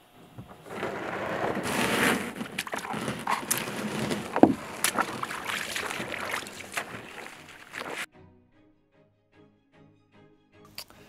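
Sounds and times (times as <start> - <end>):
water splashing from wading: 0.0 - 8.1
knocks against canoe: 0.3 - 8.0.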